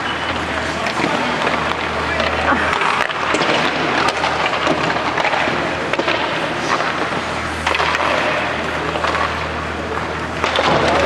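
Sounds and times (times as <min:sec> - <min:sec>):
steady low hum: 0:00.0 - 0:11.0
sticks hitting pucks: 0:00.3 - 0:11.0.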